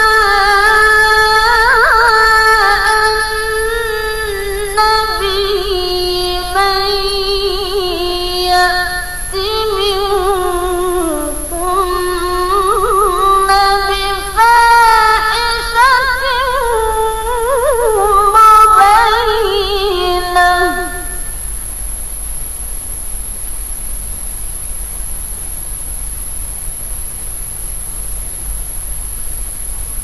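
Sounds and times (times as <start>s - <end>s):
woman chanting melodically: 0.0s - 21.4s.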